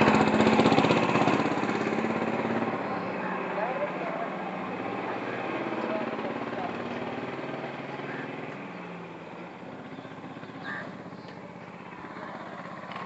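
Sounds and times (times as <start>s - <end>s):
engine idling: 0.0s - 13.0s
faint voices: 2.6s - 8.9s.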